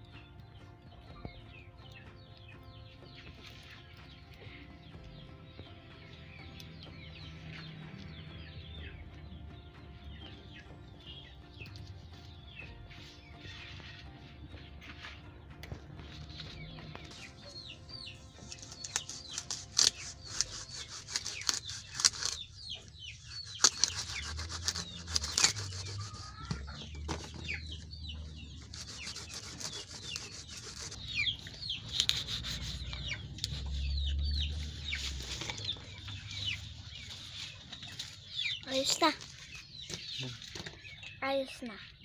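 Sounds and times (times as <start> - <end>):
chickens clucking: 10.2 - 41.7
rustling and crackling of leafy stalks: 10.2 - 41.7.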